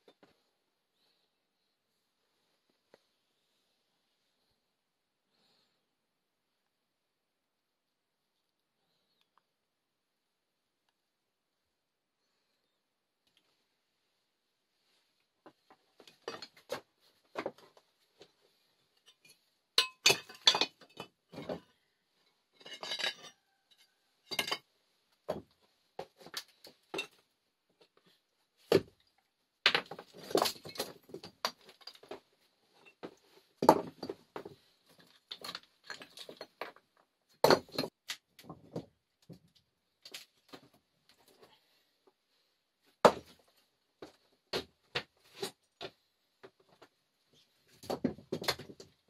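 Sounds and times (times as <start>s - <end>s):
stones clinking and knocking: 19.1s - 21.6s, 29.6s - 32.2s, 32.8s - 38.6s.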